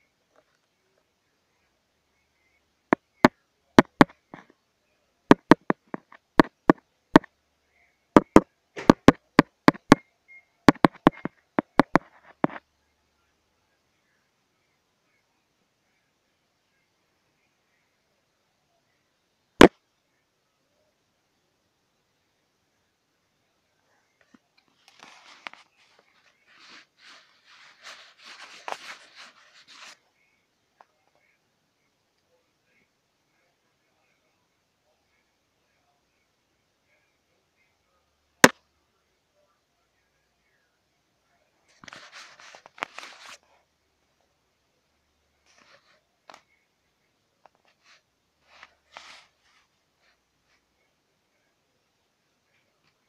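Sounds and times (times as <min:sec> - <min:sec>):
sharp irregular taps: 0:03.8 - 0:04.4, 0:05.3 - 0:07.3, 0:08.2 - 0:10.0, 0:10.7 - 0:12.6
rubbing against phone: 0:10.7 - 0:12.6, 0:24.7 - 0:30.0, 0:41.8 - 0:43.6, 0:47.6 - 0:50.6.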